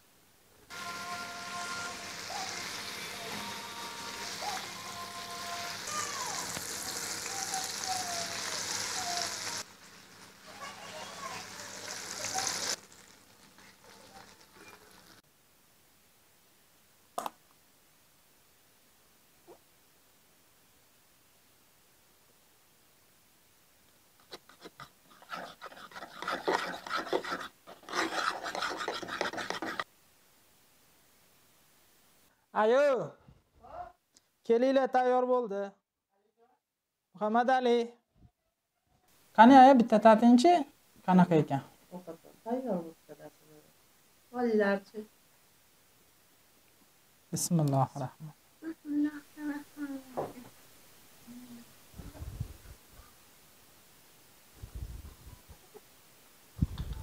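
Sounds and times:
hot oil sizzling: 0.7 - 15.2, 24.0 - 30.0
spoon scraping in wooden bowl: 24.2 - 29.9.

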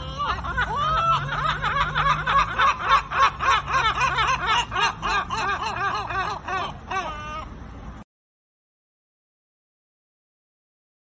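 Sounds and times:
gulls yelping long call: 0.0 - 7.6.

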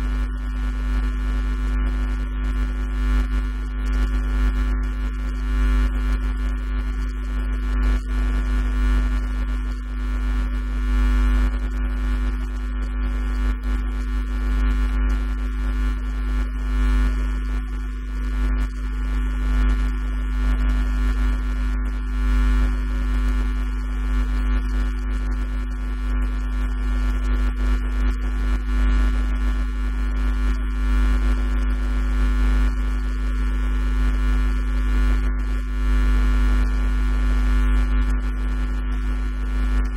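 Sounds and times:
electrical mains hum: 0.0 - 13.8.

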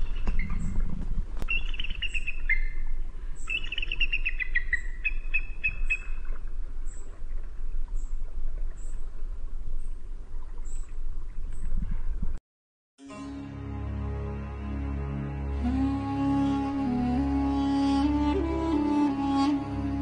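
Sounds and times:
songbird singing: 0.0 - 7.2.

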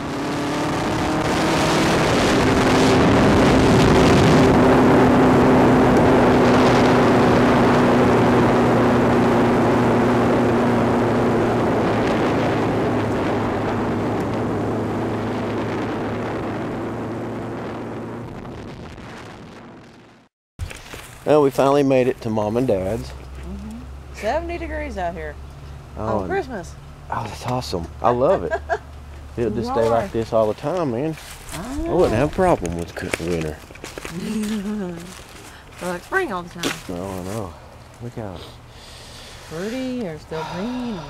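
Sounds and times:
motorcycle engine cruising: 0.0 - 18.6, 19.5 - 41.0
wind on microphone: 0.0 - 20.2.

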